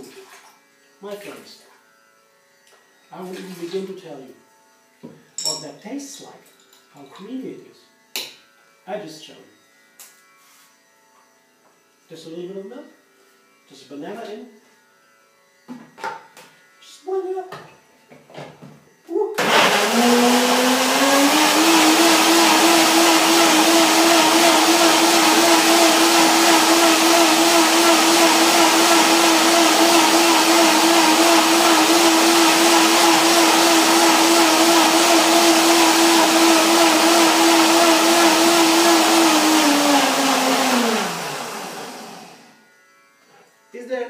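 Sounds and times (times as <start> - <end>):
blender motor running: 19.4 - 42.7.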